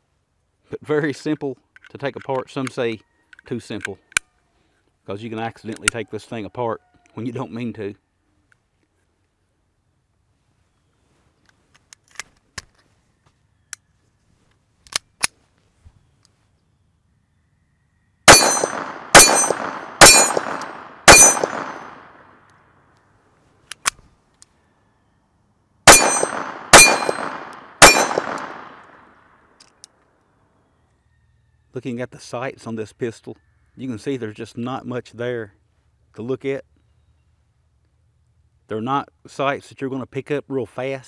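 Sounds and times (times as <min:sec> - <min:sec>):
pistol handling clicks: 0:05.7 - 0:05.9, 0:18.3 - 0:22.6, 0:23.7 - 0:24.5, 0:25.9 - 0:30.0
pistol shots ringing: 0:18.3 - 0:22.4, 0:25.9 - 0:29.2.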